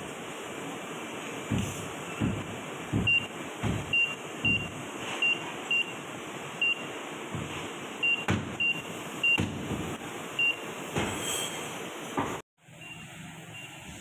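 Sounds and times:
sharp knocks: 1.5 - 4.7, 8.2 - 8.6, 9.3 - 10.0.

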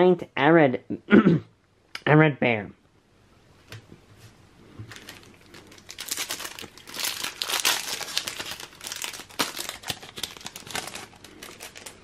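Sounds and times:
foil wrapper crinkling: 4.9 - 12.0.

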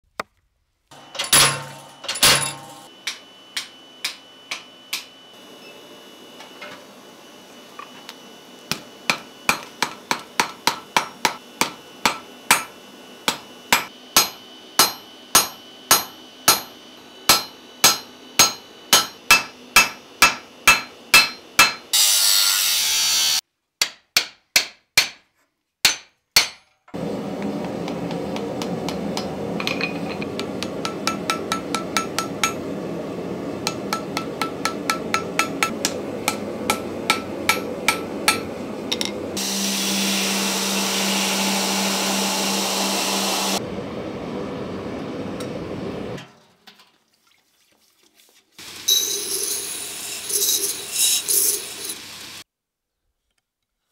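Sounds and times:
hammer blows on anvil: 8.7 - 22.2, 27.8 - 32.7, 33.6 - 39.2.

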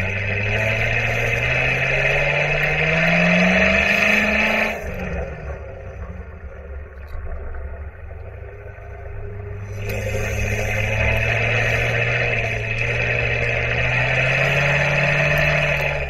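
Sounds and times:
sports car engine accelerating: 0.0 - 16.0.

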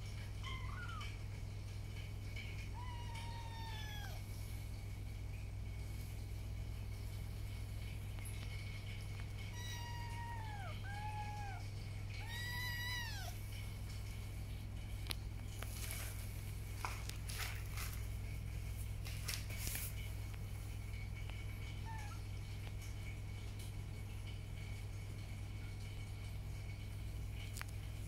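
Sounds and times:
scratchy rustles: 15.5 - 18.2, 18.8 - 20.2.

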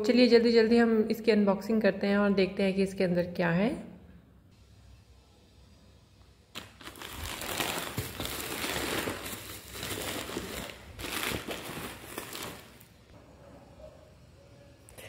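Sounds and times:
plastic bag and bubble wrap crinkling: 6.5 - 13.1.

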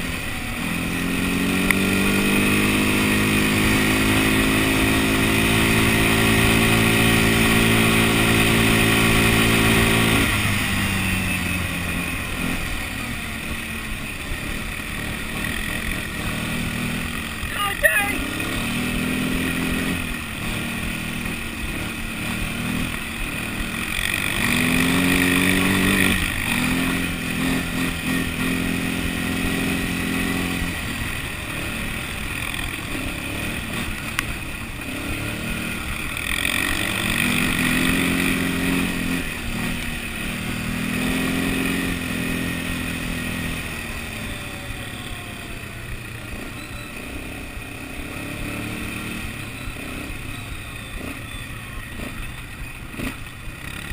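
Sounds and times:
quad bike engine revving: 0.0 - 53.9.

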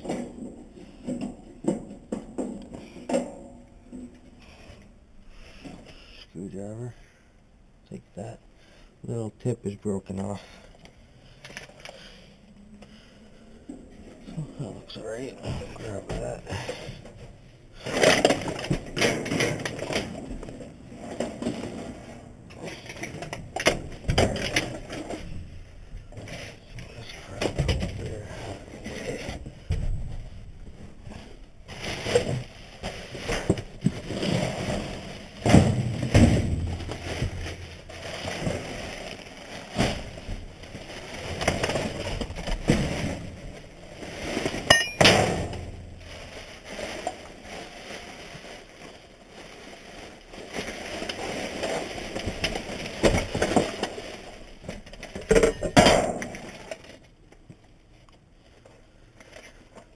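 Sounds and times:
plastic bags rustling: 8.6 - 59.9
sharp clink: 44.7 - 45.1.

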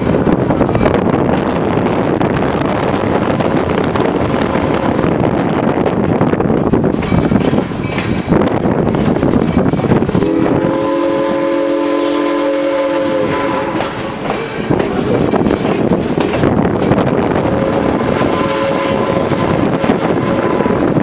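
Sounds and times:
train car clattering on rails: 5.6 - 10.3, 13.6 - 17.6
steam locomotive chime whistle: 10.2 - 14.1, 17.6 - 20.8.

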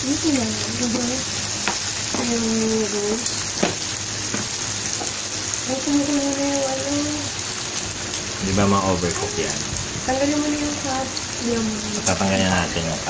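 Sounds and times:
meat sizzling on a grill: 0.0 - 13.0
utensil clicking on grill: 1.6 - 2.4.

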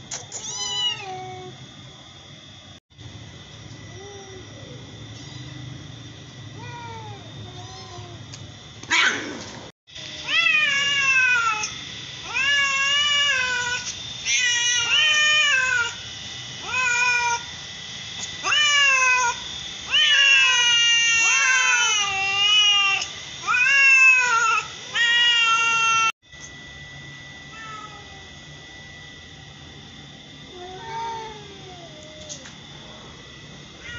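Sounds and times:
cat meowing: 0.3 - 1.5, 27.5 - 28.2.

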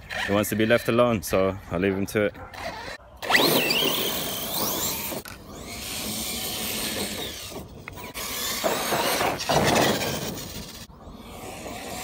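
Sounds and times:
rc truck motor whine and rattle: 2.5 - 12.0.

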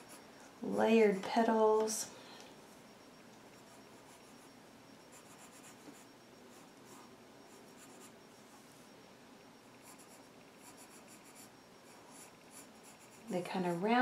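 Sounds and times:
pencil scratching on paper: 0.0 - 0.3, 5.1 - 8.2, 9.8 - 14.0.

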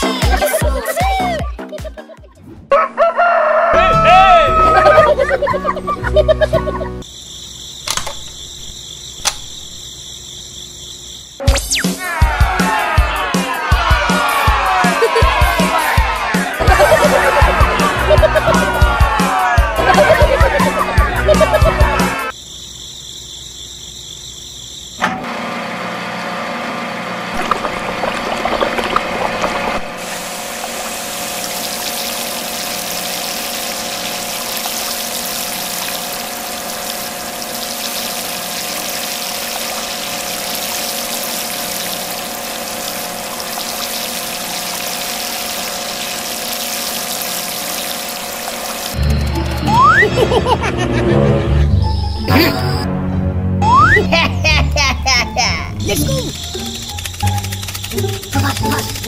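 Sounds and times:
electric water pump humming: 3.8 - 11.8, 14.2 - 22.3, 23.9 - 50.8, 54.0 - 59.0
water pouring: 27.4 - 49.0.

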